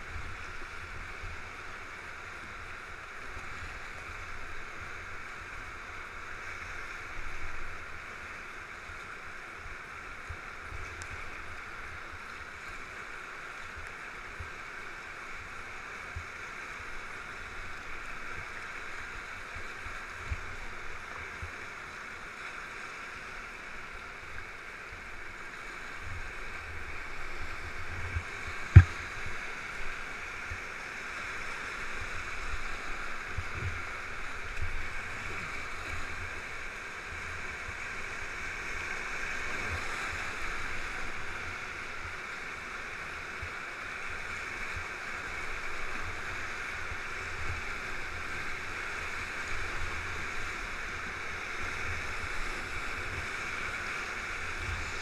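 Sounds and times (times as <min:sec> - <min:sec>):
whitewater rapids rushing: 0:00.0 - 0:55.0
sharp knock on canoe: 0:28.7 - 0:29.0.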